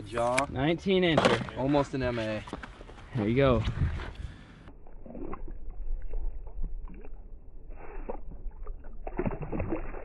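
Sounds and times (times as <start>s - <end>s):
water sloshing and splashing: 4.7s - 10.0s.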